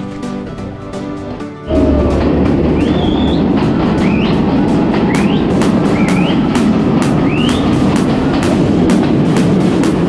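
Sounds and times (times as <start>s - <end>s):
train wheels rumbling on rail: 0.0s - 10.0s
high-pitched squeal: 1.7s - 7.8s
rapid wheel clacks: 1.7s - 10.0s.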